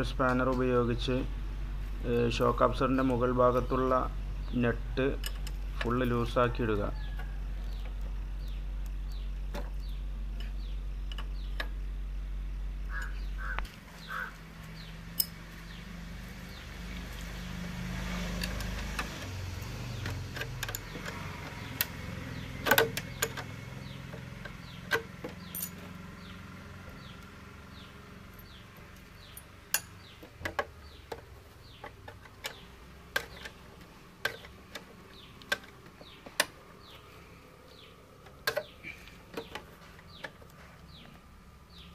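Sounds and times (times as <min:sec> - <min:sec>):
steady low hum: 0:00.0 - 0:41.9
metal spanner clicking on bolts: 0:20.0 - 0:26.0, 0:28.4 - 0:37.0.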